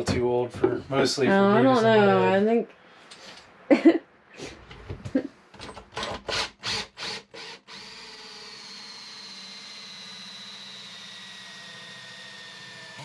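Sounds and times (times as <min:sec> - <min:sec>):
cordless drill whining: 0:06.0 - 0:13.0.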